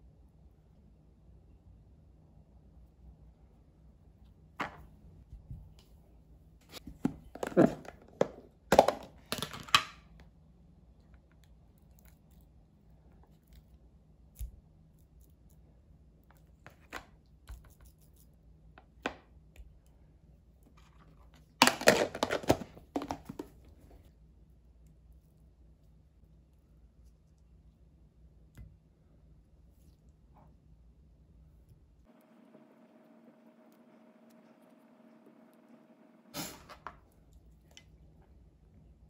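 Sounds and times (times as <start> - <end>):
plastic container lid snapping shut: 6.9 - 9.9, 21.6 - 23.5.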